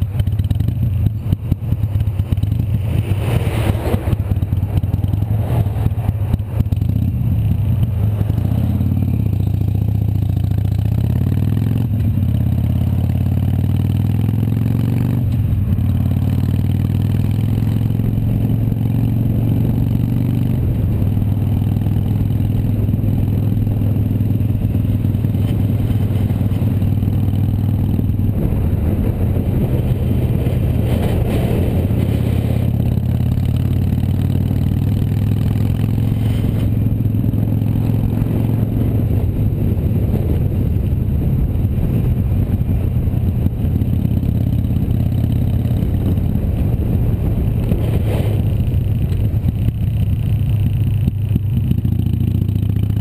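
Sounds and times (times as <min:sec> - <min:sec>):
wind rushing over microphone: 0:00.0 - 0:52.5
motorcycle engine running: 0:00.0 - 0:53.0.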